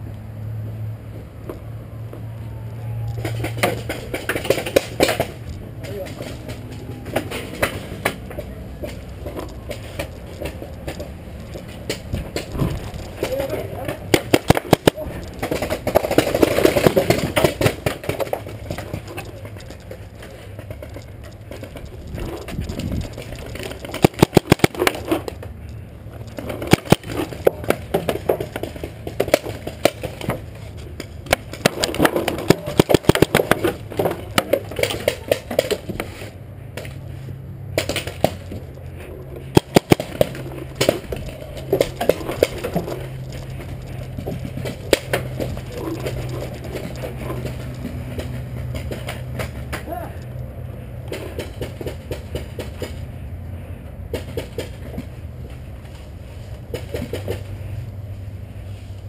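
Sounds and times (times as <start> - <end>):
paintball markers firing: 12.1 - 19.5, 23.1 - 25.4, 39.4 - 48.3.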